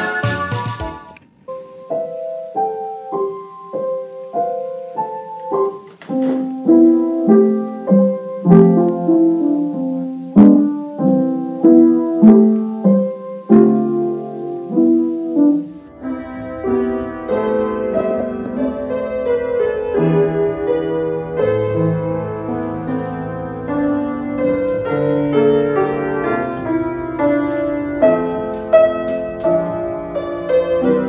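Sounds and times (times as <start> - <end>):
faint low background noise: 0.0 - 31.0
piano playing held chords: 0.0 - 31.0.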